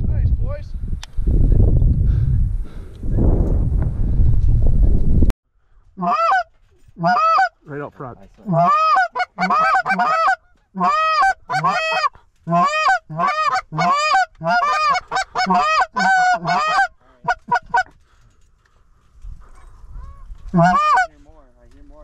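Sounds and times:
goose call honks and clucks: 6.0s - 7.6s, 8.4s - 18.0s, 19.5s - 21.2s.

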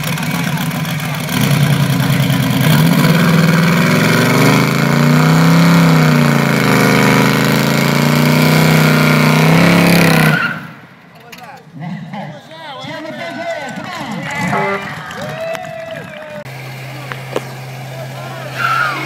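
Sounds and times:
car engine at high revs: 0.0s - 10.8s, 16.4s - 19.0s
tyres spinning on asphalt: 0.0s - 19.0s.

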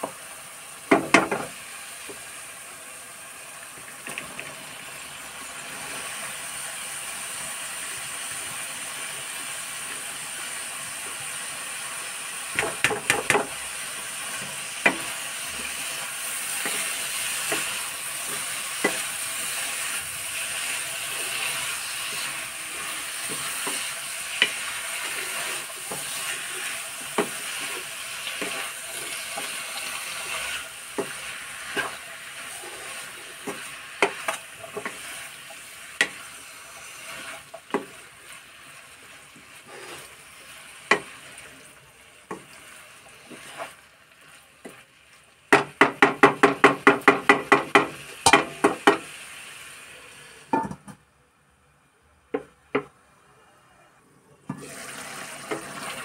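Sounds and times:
food sizzling in a pan: 0.0s - 50.8s, 54.5s - 56.0s.

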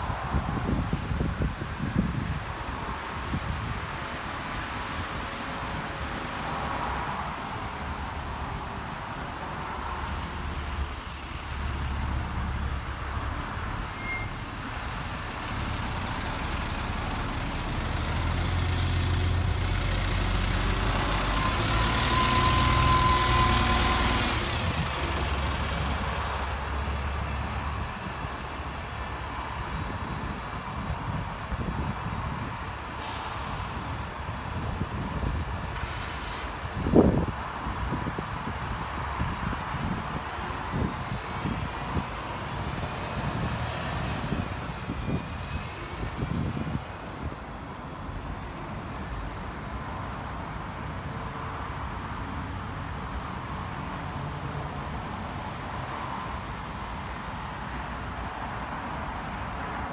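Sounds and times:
bus engine running: 15.2s - 29.4s
air brake bursts: 33.0s - 34.0s, 35.8s - 36.5s.

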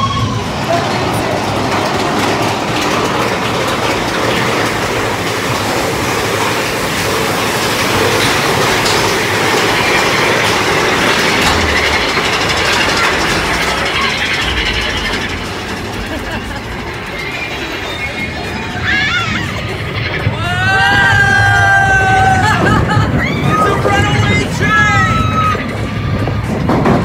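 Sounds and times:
coaster cars rattling on rails: 0.0s - 27.0s.

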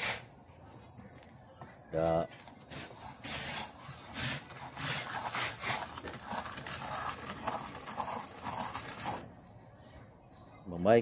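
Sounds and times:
wet clay being scraped: 2.3s - 9.3s.

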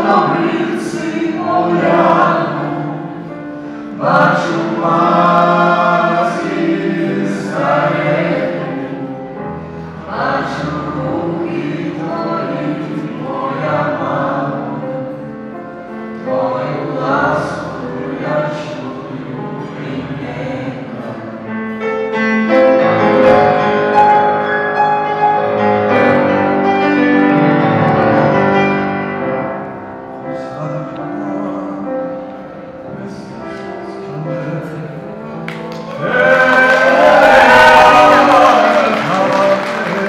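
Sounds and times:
mixed choir singing in parts: 0.0s - 21.6s, 35.5s - 40.0s
grand piano: 0.0s - 40.0s.

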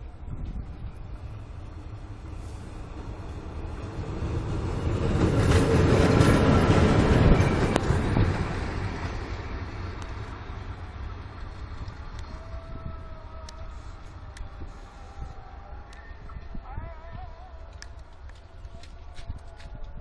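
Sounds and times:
diesel locomotive passing: 0.0s - 16.3s.

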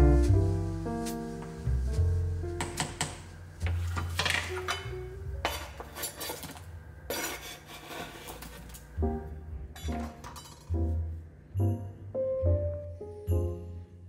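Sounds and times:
background music: 0.0s - 5.8s, 9.0s - 14.0s
knife scraping cutting board: 5.4s - 8.8s.

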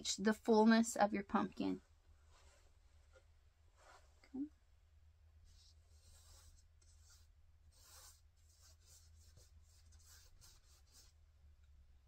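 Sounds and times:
paintbrush swishing on canvas: 3.8s - 4.2s, 5.4s - 11.2s.

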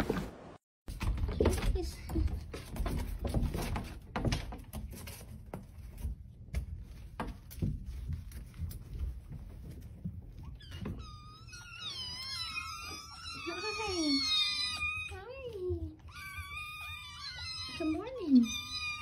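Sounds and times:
kittens mewing: 10.5s - 19.0s.

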